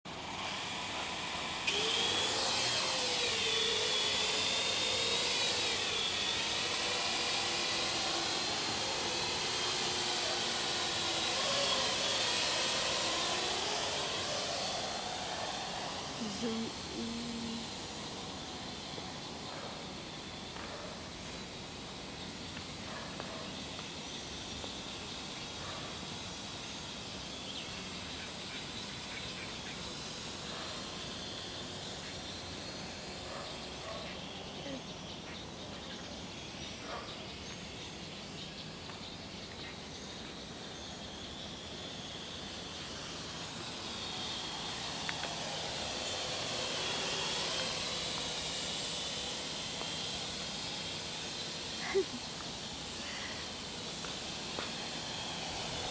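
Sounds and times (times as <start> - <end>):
drone propellers whining: 0.1 - 55.9
steady hiss: 37.3 - 55.9.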